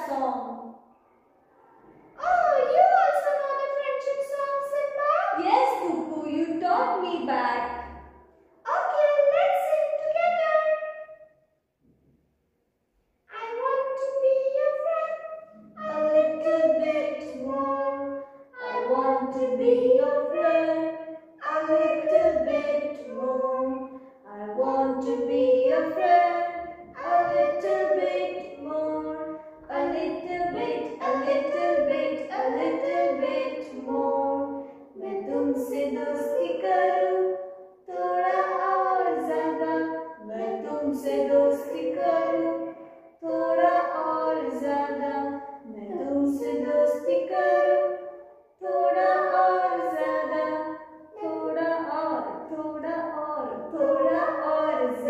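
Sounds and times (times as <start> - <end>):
person singing unaccompanied: 13.3 - 37.2, 37.9 - 42.6, 43.2 - 48.0, 48.6 - 55.0.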